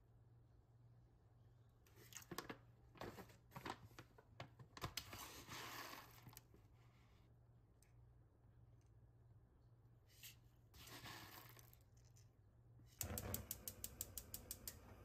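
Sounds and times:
grain pattering on metal pot: 0:13.0 - 0:15.0.

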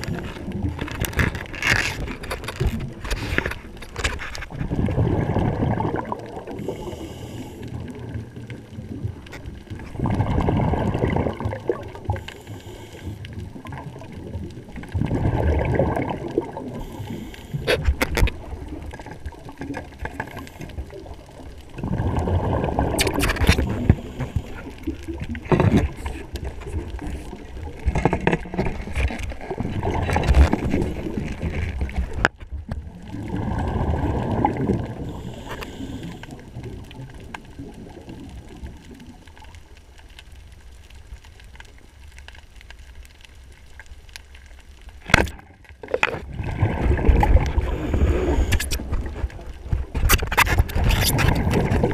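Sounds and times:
exhaled breath bubbling underwater: 0:04.6 - 0:08.2, 0:09.8 - 0:14.1, 0:14.9 - 0:18.7, 0:19.8 - 0:28.0, 0:33.0 - 0:36.9, 0:46.2 - 0:49.2.

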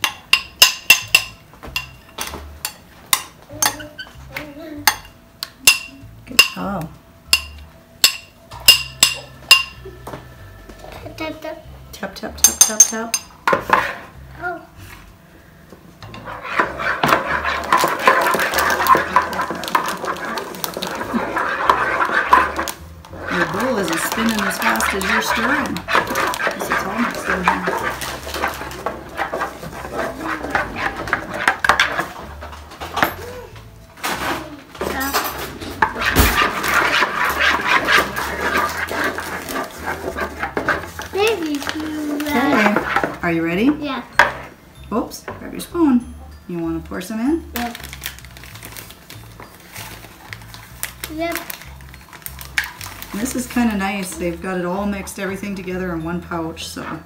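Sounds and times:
spatula scraping glass bowl: 0:16.0 - 0:32.5, 0:34.9 - 0:43.4
spoon stirring in plastic bowl: 0:16.0 - 0:33.1, 0:34.8 - 0:44.4, 0:47.6 - 0:57.0
pouch crinkling: 0:47.6 - 0:53.4.

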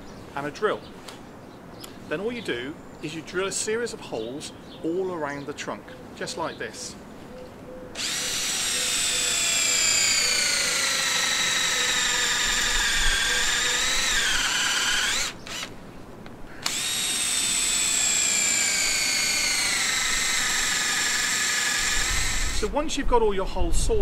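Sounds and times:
drill boring into wood: 0:08.0 - 0:15.7, 0:16.6 - 0:22.7.

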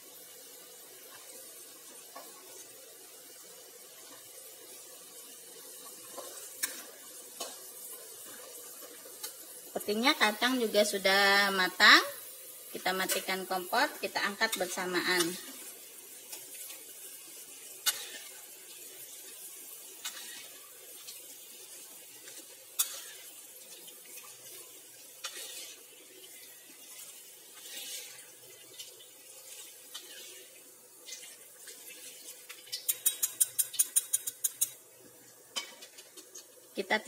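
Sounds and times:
oil sizzling: 0:00.0 - 0:37.0
metal utensils scraping a wok: 0:17.8 - 0:18.4, 0:20.0 - 0:20.6, 0:22.3 - 0:23.4, 0:25.2 - 0:25.9, 0:27.6 - 0:28.3, 0:29.5 - 0:30.5.

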